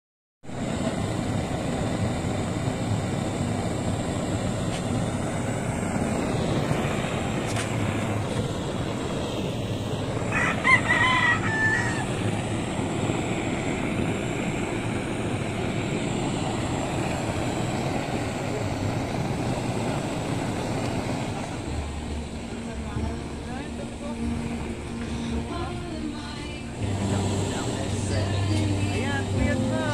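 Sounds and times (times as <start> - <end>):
blowtorch flame hissing: 0.4 - 29.9
rooster crowing: 10.2 - 12.3.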